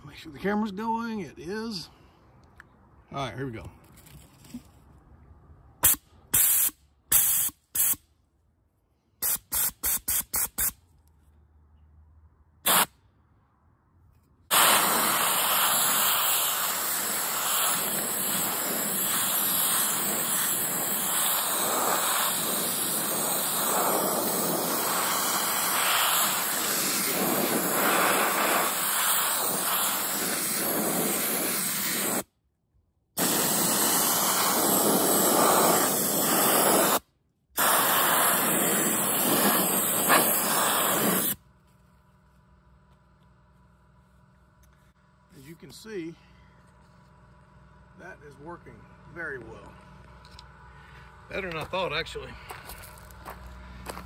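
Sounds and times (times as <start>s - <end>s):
soda blaster hissing: 14.5s - 32.3s, 33.2s - 37.0s, 37.6s - 41.4s.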